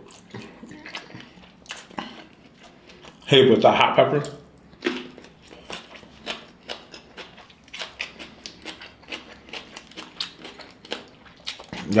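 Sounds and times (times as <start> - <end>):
crisp chewing crunches: 4.1 - 12.0.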